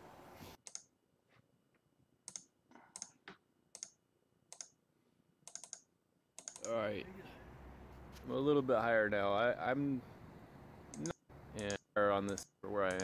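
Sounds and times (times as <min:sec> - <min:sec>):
computer keys clicking: 0:00.6 - 0:00.9, 0:02.2 - 0:04.8, 0:05.4 - 0:06.8, 0:10.9 - 0:13.0.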